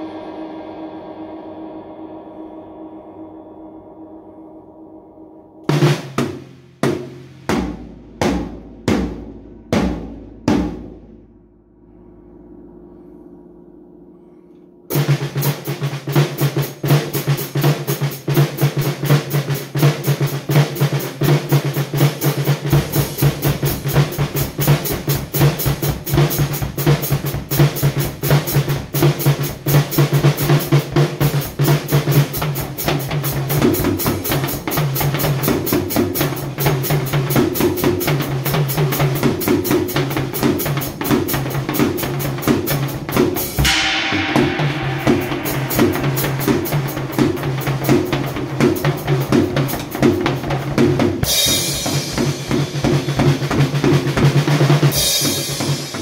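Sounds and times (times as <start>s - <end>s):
cymbal crash: 0.0s - 18.3s, 41.4s - 54.2s
snare and tom strokes: 5.6s - 11.2s, 14.2s - 56.0s
kick drum: 5.9s - 11.0s.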